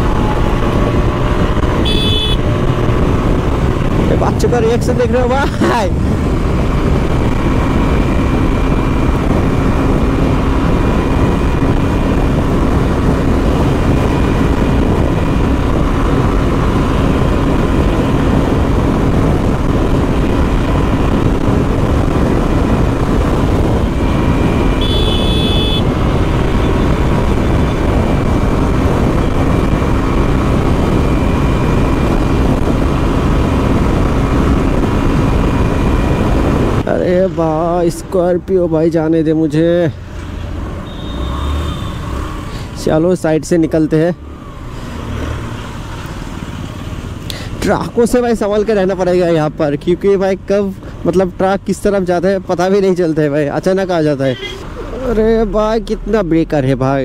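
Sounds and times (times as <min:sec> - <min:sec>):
scooter engine drone: 0:00.0 - 0:04.8, 0:05.4 - 0:37.8
rushing wind noise: 0:00.0 - 0:56.8.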